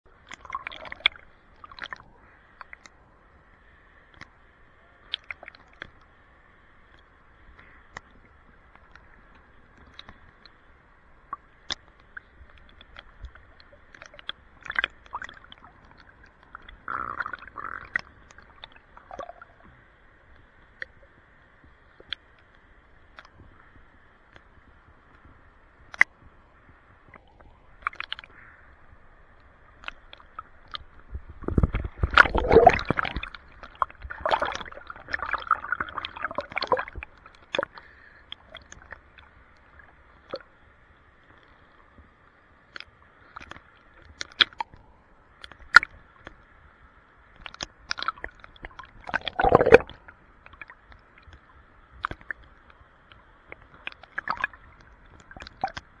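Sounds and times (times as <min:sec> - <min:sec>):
river water sloshing and gurgling: 0:00.1 - 0:03.0, 0:11.2 - 0:19.8, 0:27.0 - 0:40.5, 0:42.6 - 0:46.3, 0:47.3 - 0:52.5, 0:53.4 - 0:56.0
small water splashes: 0:00.1 - 0:03.0, 0:05.0 - 0:06.1, 0:11.2 - 0:19.7, 0:27.0 - 0:28.6, 0:29.5 - 0:40.5, 0:42.7 - 0:44.8, 0:47.3 - 0:56.0.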